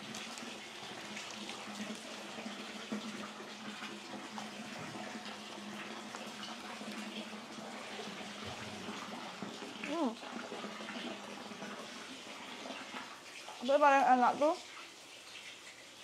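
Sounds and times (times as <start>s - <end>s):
water splashing into a pool: 0.0s - 16.0s.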